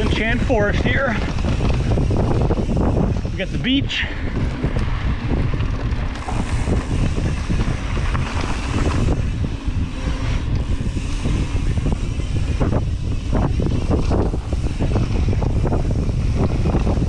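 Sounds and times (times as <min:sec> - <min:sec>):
bike knocking over bumps: 0:00.0 - 0:03.2
tyres rolling on dirt trail: 0:00.0 - 0:17.0
wind buffeting microphone: 0:00.0 - 0:17.0.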